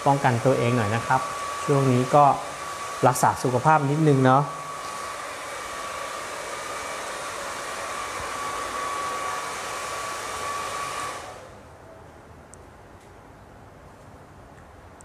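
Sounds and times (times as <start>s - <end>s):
hair dryer running: 0.0s - 11.6s.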